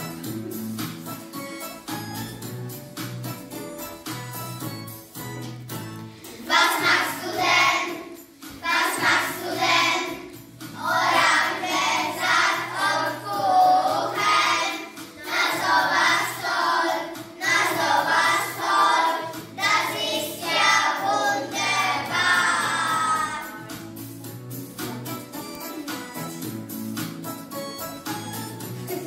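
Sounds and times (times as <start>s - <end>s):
recorded backing music: 0.0s - 29.0s
children singing in unison: 6.3s - 23.6s.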